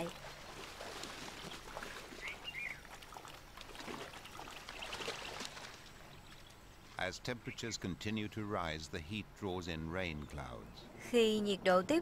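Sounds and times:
mud and water sloshing: 0.0 - 6.9.

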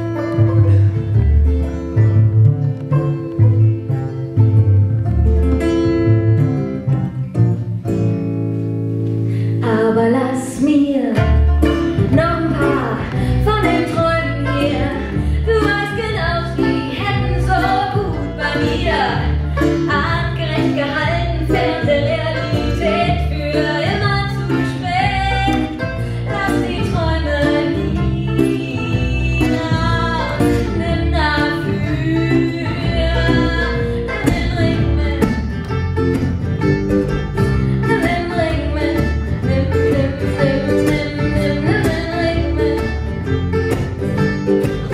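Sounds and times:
strummed acoustic guitar: 0.0 - 9.8, 11.1 - 44.9
banjo: 0.0 - 44.9
plucked double bass: 0.0 - 44.9
woman singing: 9.6 - 35.7, 37.7 - 43.5.

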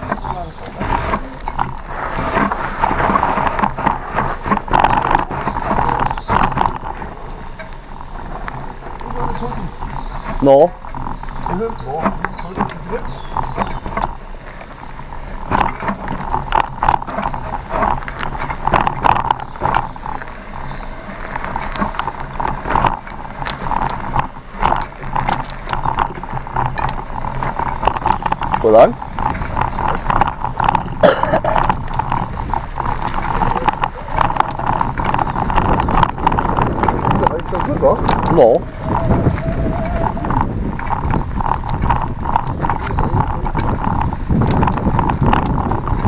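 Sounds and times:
bicycle rattling and clattering: 0.0 - 46.0
tyres rumbling: 0.0 - 46.0
wind on microphone: 0.0 - 46.0.

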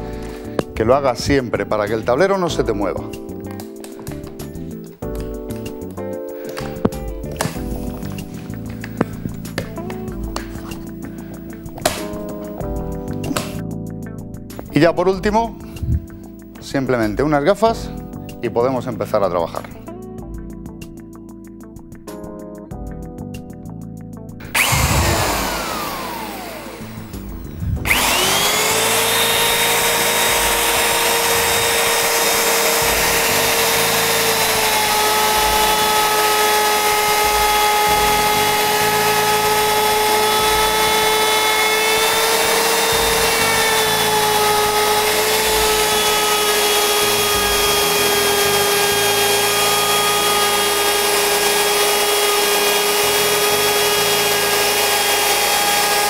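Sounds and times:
router high-pitched whine: 24.4 - 56.0.

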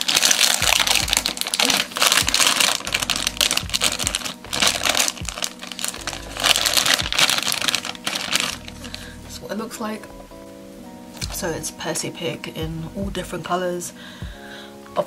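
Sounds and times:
packet tearing open: 0.0 - 9.1
plastic packet crinkling: 0.0 - 9.2.

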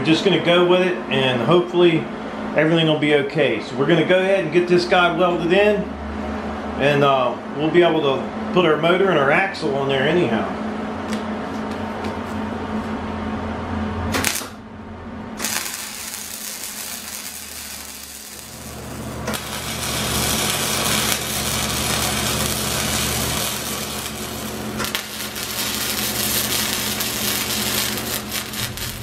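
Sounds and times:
arc welding crackling: 14.1 - 14.6, 15.4 - 29.0.

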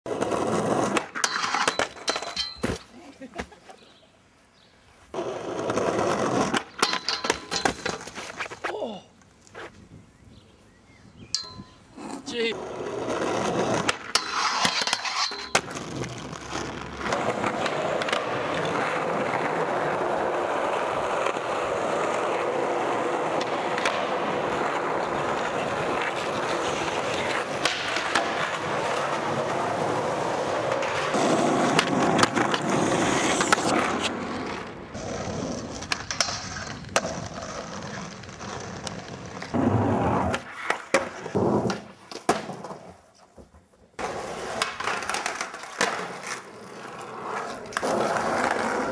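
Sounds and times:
skateboard grinding on a rail: 0.1 - 2.8, 5.1 - 8.7, 12.0 - 43.1, 44.0 - 48.9
skateboard pops and landing slaps: 0.7 - 3.5, 13.8 - 16.1, 17.0 - 18.9, 23.3 - 28.7, 30.6 - 34.6, 38.8 - 43.4, 44.0 - 46.5.

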